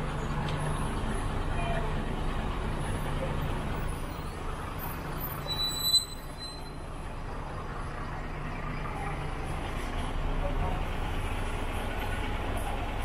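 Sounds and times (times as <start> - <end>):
street traffic rumble: 0.0 - 13.0
short high-pitched squeal: 5.4 - 6.8.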